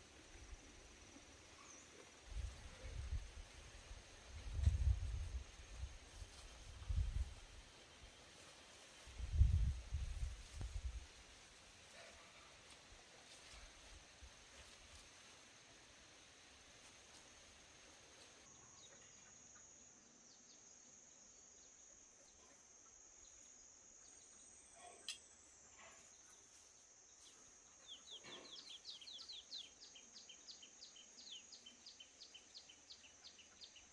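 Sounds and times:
bird chirps: 0:18.5 - 0:20.6, 0:27.2 - 0:33.9.

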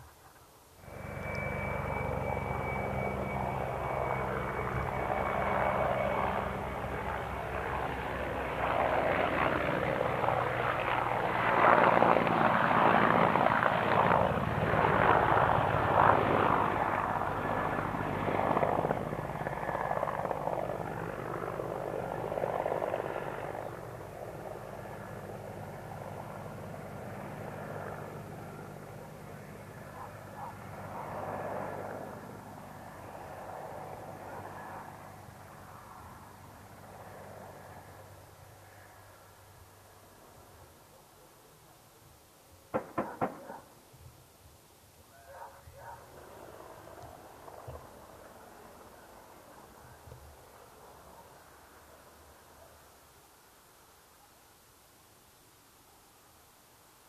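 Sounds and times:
helicopter engines and rotor: 0:00.8 - 0:40.4, 0:45.6 - 0:51.6.

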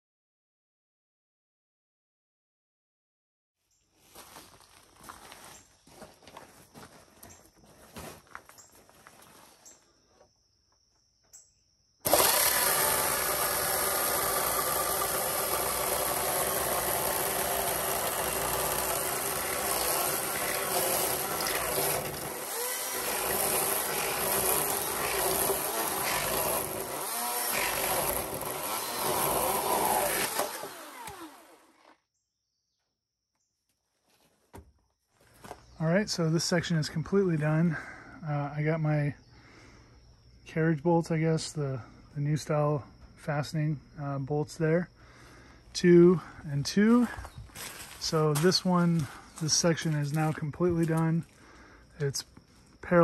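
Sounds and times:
power tool running: 0:12.0 - 0:32.0.

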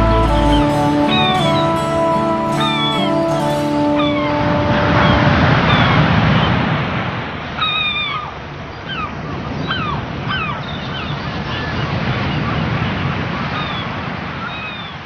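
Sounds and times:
song held notes: 0:00.0 - 0:06.3
gulls calling: 0:00.0 - 0:06.8, 0:07.5 - 0:11.8
surf washing on shore: 0:00.0 - 0:10.4.

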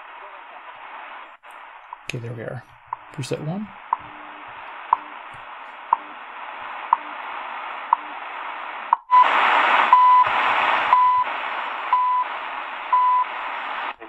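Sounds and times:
static hiss: 0:00.0 - 0:14.0
time signal ticks: 0:02.9 - 0:06.2, 0:06.9 - 0:07.2, 0:07.9 - 0:08.2, 0:08.9 - 0:09.2
longer beeps: 0:09.9 - 0:10.3, 0:10.9 - 0:11.3, 0:11.9 - 0:12.3, 0:12.9 - 0:13.2.

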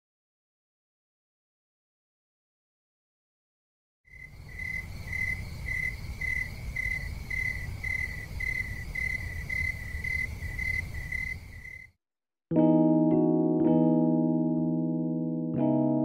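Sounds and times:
cricket chirping: 0:04.1 - 0:12.0.

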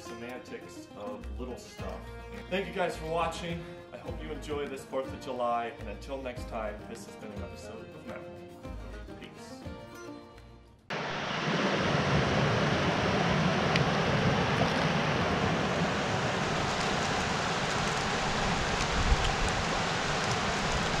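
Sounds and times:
river rushing over boulders: 0:10.9 - 0:21.0.

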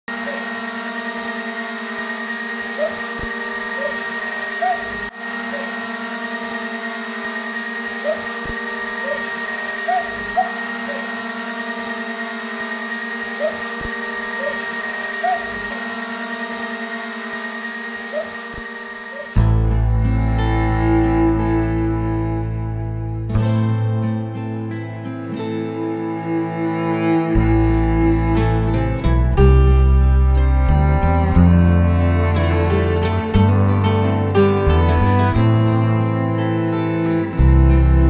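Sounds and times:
steady motor-like hum: 0:00.0 - 0:38.0.

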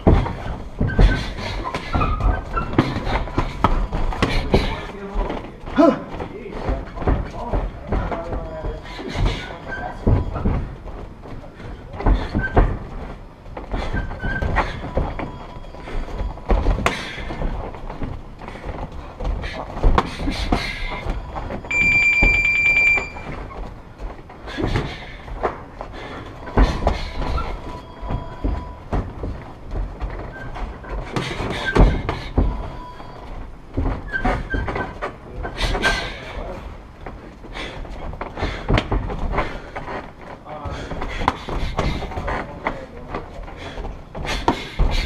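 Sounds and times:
high electronic beep: 0:21.7 - 0:23.3.

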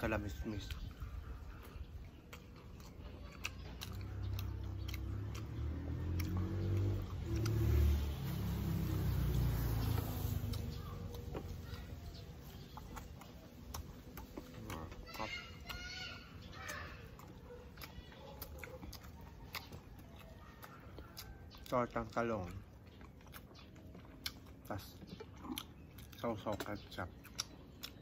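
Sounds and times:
vehicle engine passing by: 0:03.8 - 0:13.8.

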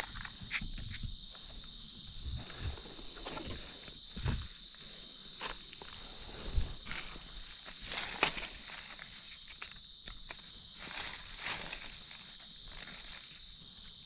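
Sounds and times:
high-pitched insect chorus: 0:00.0 - 0:14.0
rustling: 0:02.4 - 0:13.5.

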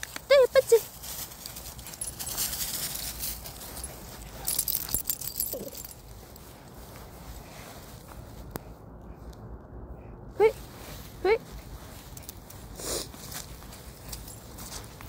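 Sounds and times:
leash clip jingling: 0:00.0 - 0:06.6, 0:13.3 - 0:15.0
dry leaves rustling underfoot: 0:00.0 - 0:08.8, 0:10.6 - 0:15.0.

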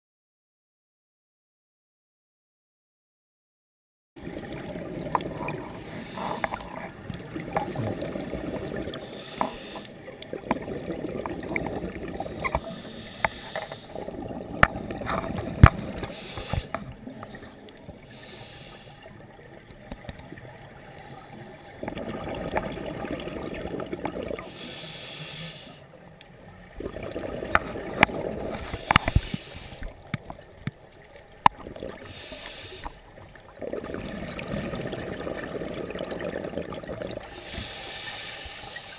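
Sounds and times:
gurgling exhaled bubbles: 0:04.2 - 0:18.3, 0:19.1 - 0:24.7, 0:26.6 - 0:30.6, 0:31.4 - 0:37.6.

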